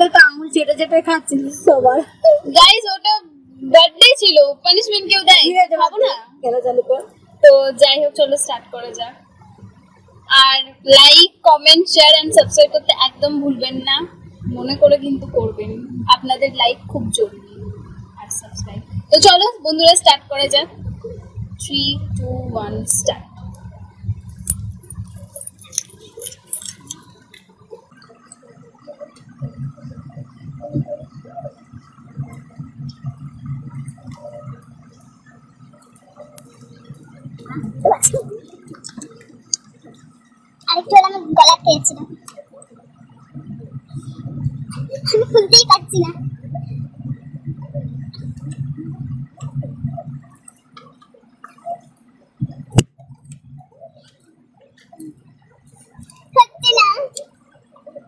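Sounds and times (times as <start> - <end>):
people gulping and swallowing: 23.2 - 40.3, 41.7 - 58.0
gulping and swallowing drink: 35.8 - 40.1.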